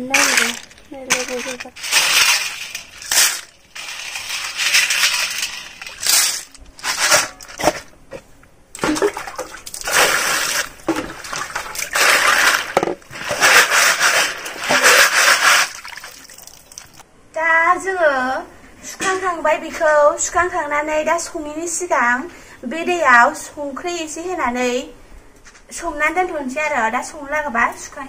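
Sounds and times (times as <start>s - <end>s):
snail shells rattling and scraping: 0.0s - 7.8s, 11.7s - 16.6s
water splashing and sloshing: 0.1s - 17.0s.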